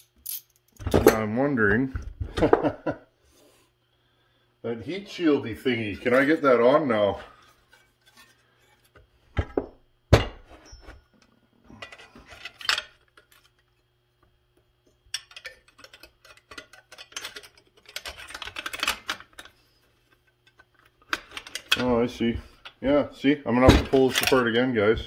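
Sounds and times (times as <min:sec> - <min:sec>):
plastic parts clunking and rattling: 0:07.3 - 0:11.0, 0:11.7 - 0:13.7, 0:15.1 - 0:22.8, 0:23.6 - 0:24.5.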